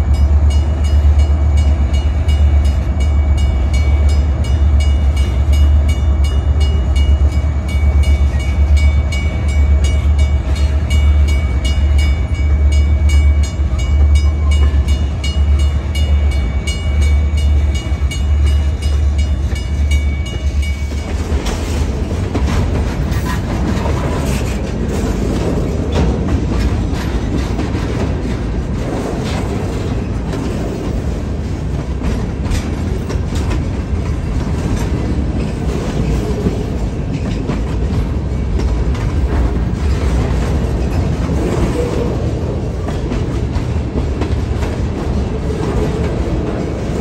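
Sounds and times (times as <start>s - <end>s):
train wheels rumbling on rail: 0.0s - 47.0s
wheels clacking over rail joints: 0.0s - 47.0s.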